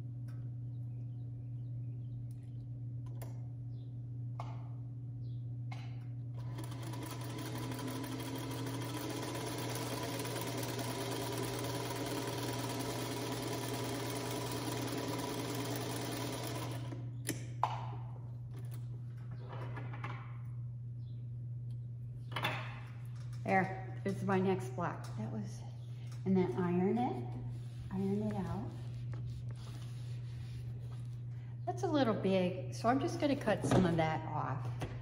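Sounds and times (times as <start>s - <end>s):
sewing machine stitching: 6.4s - 17.0s.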